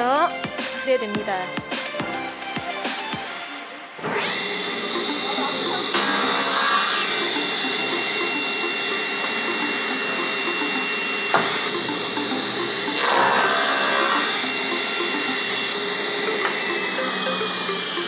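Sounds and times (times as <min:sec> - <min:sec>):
table saw whining: 0:03.8 - 0:18.0
saw blade cutting wood: 0:04.1 - 0:18.0.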